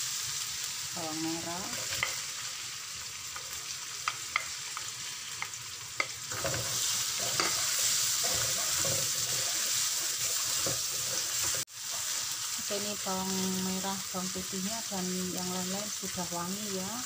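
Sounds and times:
onions sizzling in hot oil: 0:00.0 - 0:17.0
wooden spatula scraping wok: 0:06.0 - 0:12.4.

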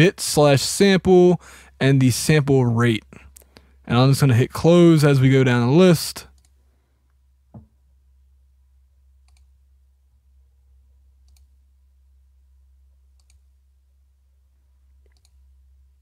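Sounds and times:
low steady hum: 0:00.0 - 0:16.0
faint mouse clicks: 0:06.3 - 0:06.6, 0:09.2 - 0:09.5, 0:11.2 - 0:11.6, 0:13.1 - 0:13.5, 0:15.0 - 0:15.4
soft thump: 0:07.5 - 0:07.7.

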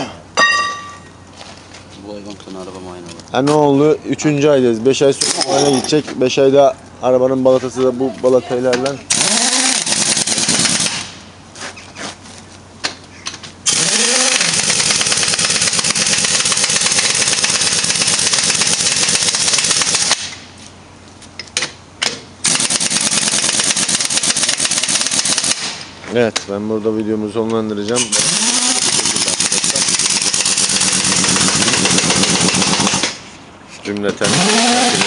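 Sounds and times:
pneumatic impact wrench hammering: 0:05.2 - 0:05.9, 0:08.8 - 0:11.2, 0:13.2 - 0:20.5, 0:21.4 - 0:25.9, 0:28.0 - 0:33.3, 0:34.2 - 0:35.0.

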